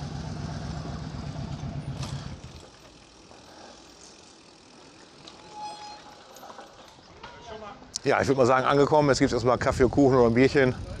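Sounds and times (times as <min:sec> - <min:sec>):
brief high squeak: 0:05.3 - 0:06.6.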